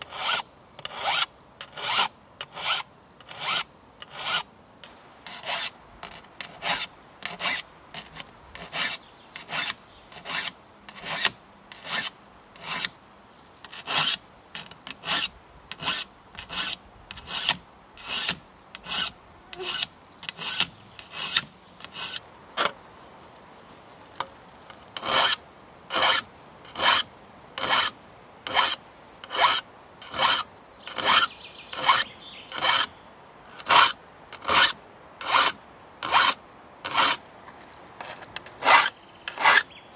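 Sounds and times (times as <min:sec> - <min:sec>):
file rasping on saw teeth: 0:32.6 - 0:32.9, 0:33.6 - 0:37.2, 0:38.6 - 0:39.7.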